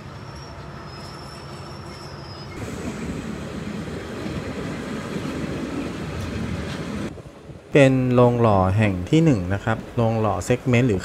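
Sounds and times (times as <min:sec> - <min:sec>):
train wheels rumbling on rails: 0:00.0 - 0:10.7.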